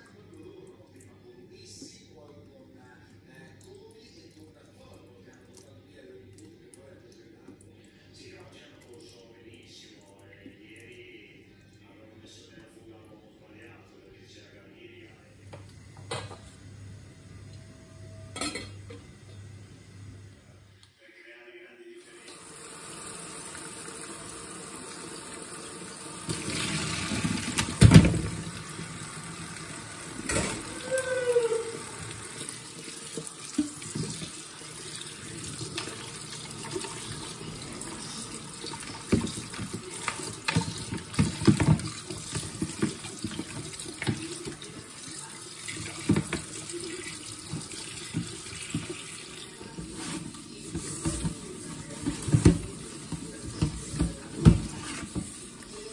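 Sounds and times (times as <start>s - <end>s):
tap water running into sink: 22.3s - 55.9s.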